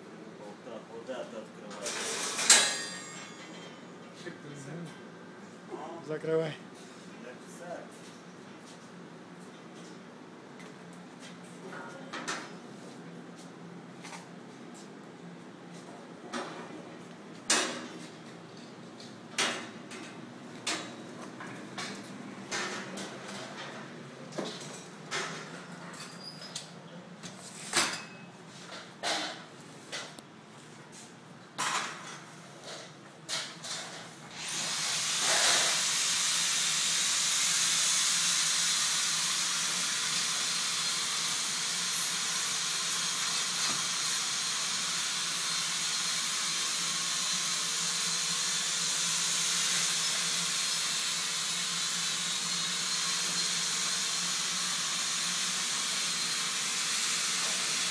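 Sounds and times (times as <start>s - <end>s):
loud hiss from hand tool: 34.3s - 57.9s.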